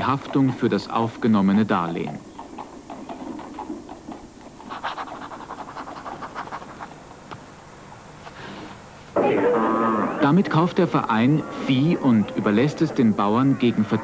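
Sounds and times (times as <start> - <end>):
quill pen scratching paper: 4.6 - 6.9.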